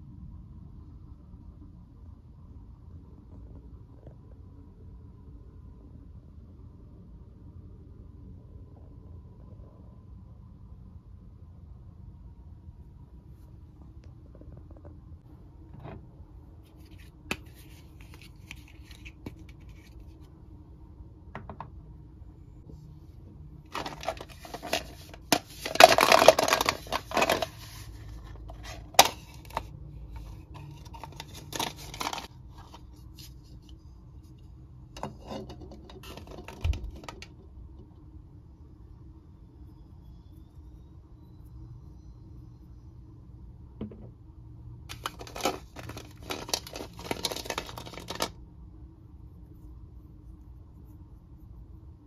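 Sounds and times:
faint steady hum: 0.0s - 52.0s
plastic scraping and rustling: 23.7s - 33.6s, 35.0s - 37.4s, 44.9s - 48.4s.

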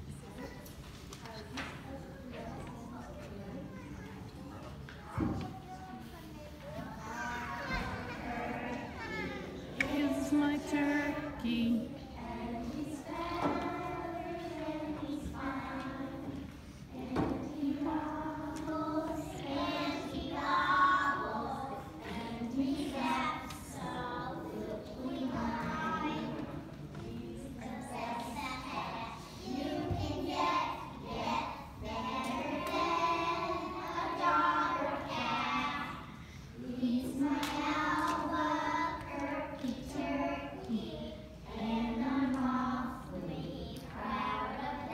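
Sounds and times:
children singing together: 6.9s - 44.9s.

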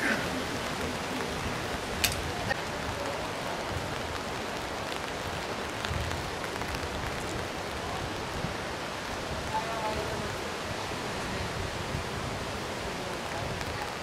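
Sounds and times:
steady rain hiss: 0.0s - 14.0s.

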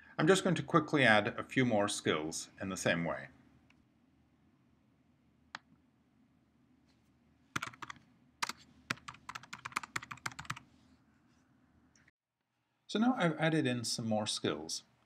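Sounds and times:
typing on computer keyboard: 7.6s - 10.6s.

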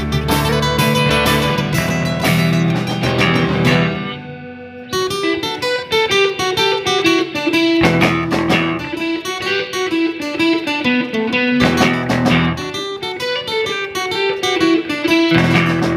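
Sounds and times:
drums: 0.0s - 4.1s, 7.6s - 9.7s, 11.6s - 12.9s, 15.2s - 15.9s
bass guitar: 0.0s - 5.4s, 7.8s - 9.2s, 11.1s - 12.8s, 15.3s - 15.9s
acoustic guitar strumming: 0.0s - 15.9s
electric guitars: 0.0s - 15.9s.

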